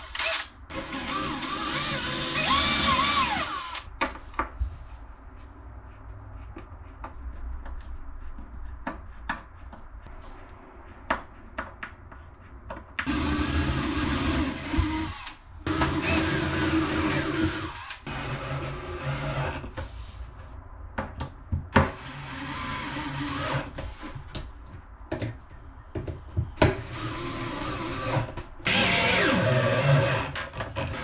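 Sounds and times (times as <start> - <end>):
power drill running: 0.0 - 3.9, 13.1 - 19.2, 22.0 - 23.6, 26.9 - 30.3.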